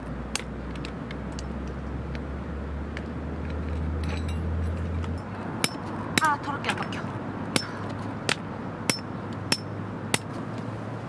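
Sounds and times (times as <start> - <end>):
vehicle engine rumble: 0.0 - 11.0
tent pegs tapped into stony ground: 0.3 - 2.3.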